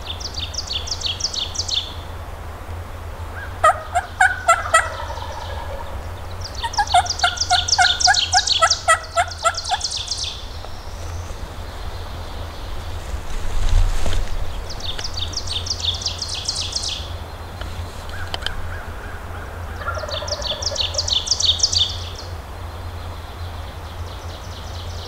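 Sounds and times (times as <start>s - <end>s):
small birds chirping: 0.0s - 2.2s, 3.1s - 25.0s
turkey calling: 3.4s - 11.1s, 18.0s - 22.1s.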